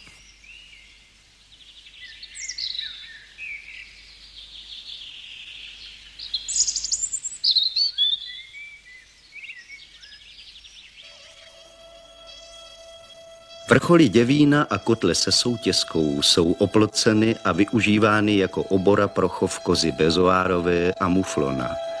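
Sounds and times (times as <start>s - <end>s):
songbird singing: 0.0s - 22.0s
steady-toned music: 11.1s - 22.0s.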